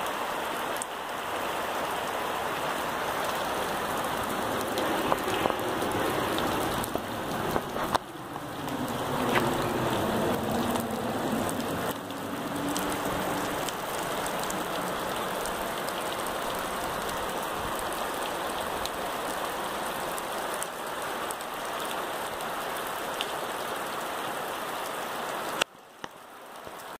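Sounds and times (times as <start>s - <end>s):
rain hissing on dirt: 0.0s - 26.9s
raindrops splashing in puddles: 0.0s - 26.9s.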